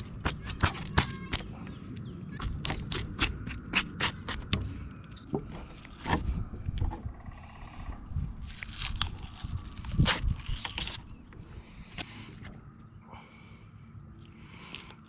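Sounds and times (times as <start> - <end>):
fish skin tearing crackles: 8.4 - 11.1.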